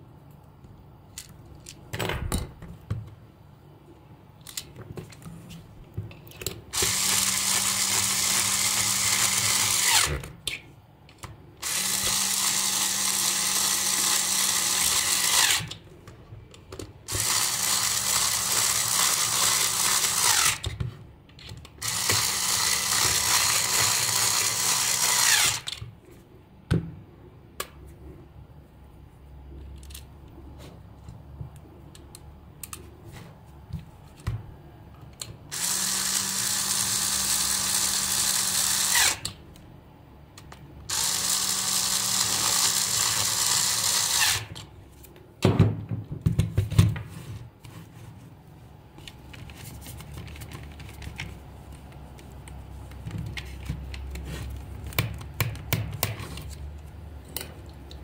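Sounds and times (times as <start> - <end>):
electric screwdriver running: 6.8 - 10.2, 11.6 - 15.8, 17.1 - 20.6, 21.8 - 25.7, 35.5 - 39.3, 40.9 - 44.6.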